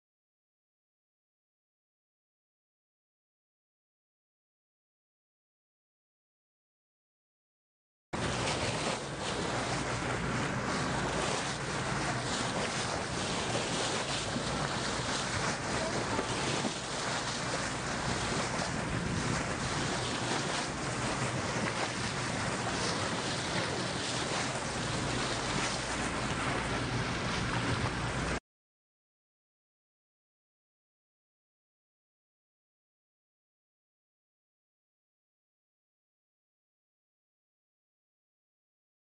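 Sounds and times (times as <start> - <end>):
sea water splashing: 8.2 - 28.4
wind on microphone: 8.2 - 28.4.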